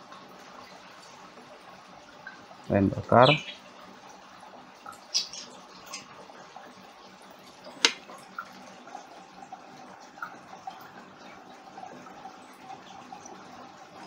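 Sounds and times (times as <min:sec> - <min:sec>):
clicks and taps of tools: 0:07.8 - 0:08.0.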